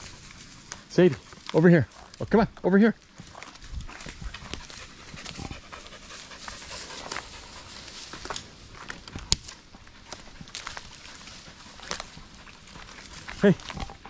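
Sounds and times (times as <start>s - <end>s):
puppy panting: 3.2s - 14.0s.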